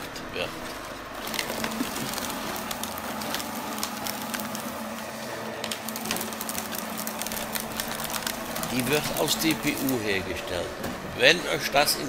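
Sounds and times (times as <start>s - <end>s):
shredder motor hum: 0.0s - 12.0s
cardboard cracking and snapping: 1.2s - 10.2s.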